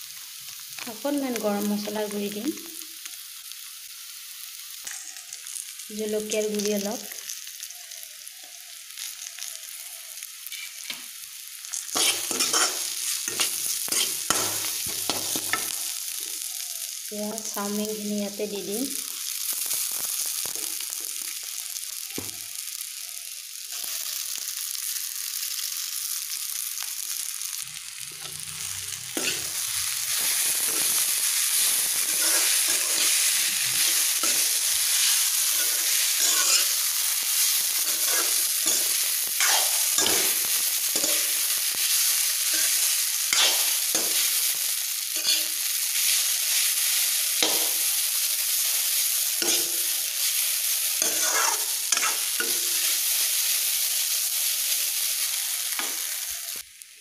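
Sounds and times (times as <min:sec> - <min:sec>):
noodles sizzling in hot oil: 0:00.0 - 0:57.0
metal spoon scraping a wok: 0:10.5 - 0:11.0, 0:11.8 - 0:15.8, 0:28.1 - 0:41.5, 0:42.4 - 0:44.4, 0:45.2 - 0:46.1, 0:49.4 - 0:49.9, 0:51.0 - 0:52.9.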